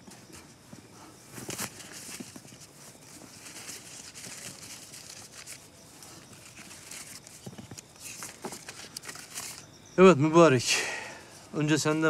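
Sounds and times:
paper slips rustling and crinkling: 0:01.4 - 0:09.6.

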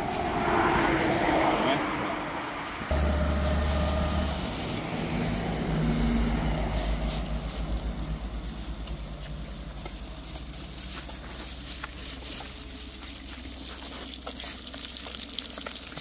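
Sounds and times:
engine pulsing rumble: 0:02.7 - 0:15.5.

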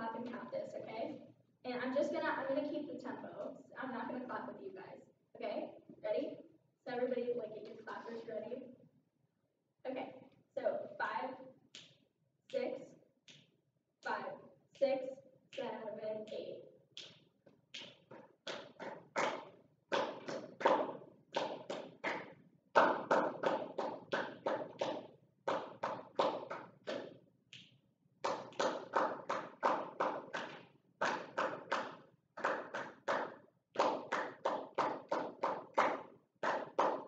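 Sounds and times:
people clapping a rhythm: 0:11.8 - 0:12.0, 0:17.0 - 0:37.0.

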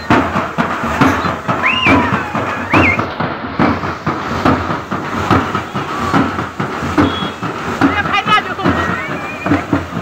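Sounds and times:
frame drums beaten fast: 0:00.0 - 0:10.0
rushing floodwater: 0:00.0 - 0:10.0
short rising high calls: 0:01.5 - 0:03.1.

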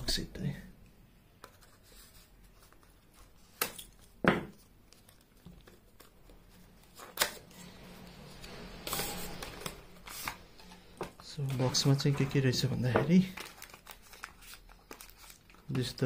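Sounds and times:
cardboard rustling: 0:08.8 - 0:15.9.

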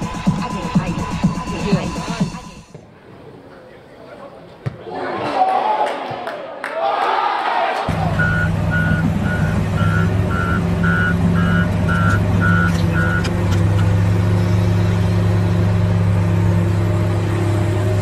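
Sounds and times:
excavator diesel engine running: 0:07.9 - 0:18.0
travel alarm beeping: 0:08.2 - 0:13.9.

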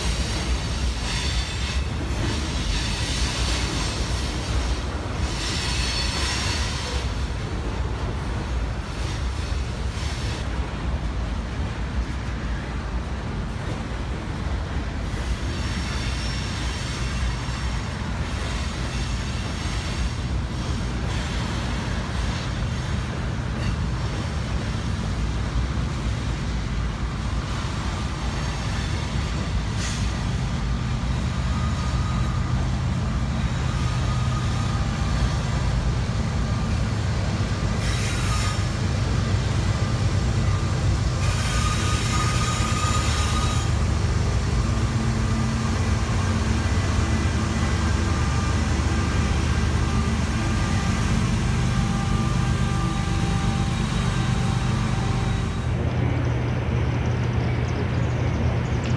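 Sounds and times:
high wheel squeal: 0:00.0 - 0:07.2, 0:15.1 - 0:22.9, 0:27.5 - 0:32.7, 0:33.4 - 0:35.8, 0:37.7 - 0:56.3
diesel locomotives: 0:00.0 - 0:58.9
train wheels rumbling on rails: 0:00.0 - 0:58.9.

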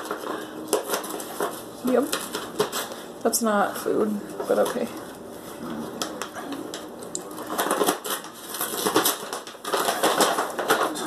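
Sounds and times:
paper bag rustling and crackling: 0:00.0 - 0:03.2, 0:06.7 - 0:11.0.

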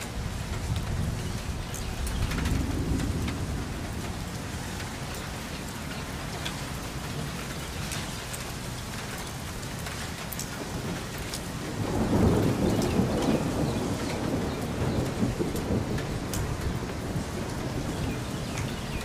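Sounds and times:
low rumble of thunder: 0:00.0 - 0:06.4, 0:10.6 - 0:19.0
raindrops ticking close by: 0:00.0 - 0:19.0
steady rain falling: 0:00.0 - 0:19.0.

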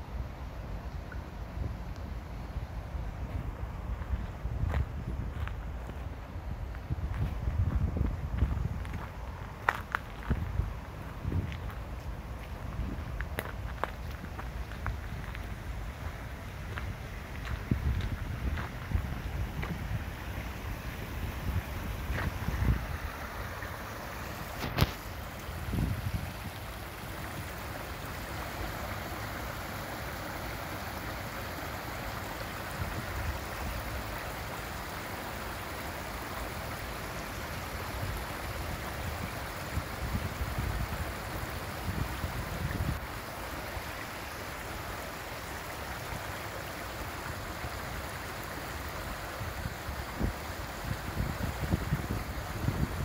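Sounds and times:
wind rumble on microphone: 0:03.0 - 0:23.4, 0:24.4 - 0:27.6, 0:37.9 - 0:43.1, 0:49.4 - 0:53.0
stream splashing over rocks: 0:03.0 - 0:53.0.

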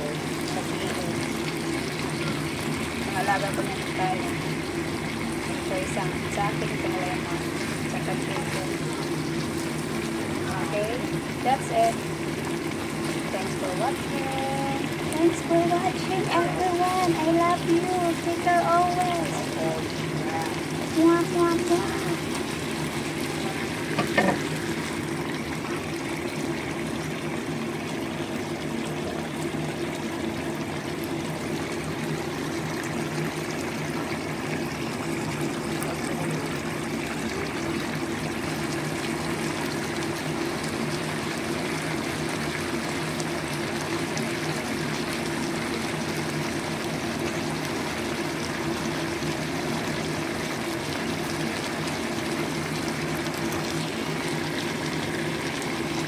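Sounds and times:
sauce bubbling in a pan: 0:00.0 - 0:56.0
knock: 0:24.0 - 0:24.4.

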